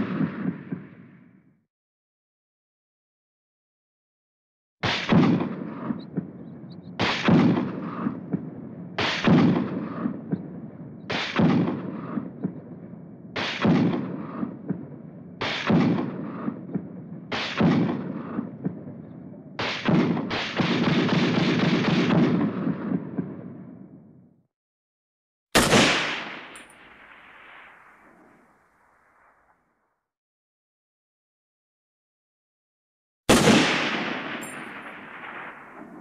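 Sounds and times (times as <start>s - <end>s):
machine-gun fire bursts: 4.8s - 6.2s, 7.0s - 8.4s, 9.0s - 10.2s, 11.1s - 12.4s, 13.4s - 14.8s, 15.4s - 18.6s, 19.6s - 23.3s, 25.6s - 27.3s, 33.3s - 36.0s.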